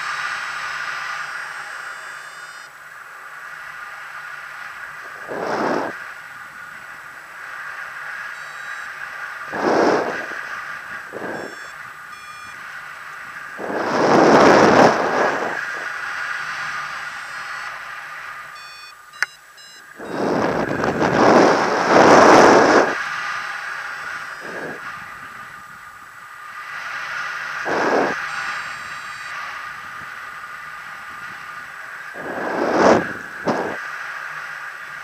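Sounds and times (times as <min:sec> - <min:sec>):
wind rushing over microphone: 0:04.8 - 0:06.1, 0:09.4 - 0:12.0, 0:13.2 - 0:16.2, 0:20.0 - 0:34.0
short electronic beeps: 0:08.4 - 0:08.9, 0:11.2 - 0:12.6, 0:17.0 - 0:17.7, 0:18.5 - 0:20.6, 0:28.0 - 0:29.4.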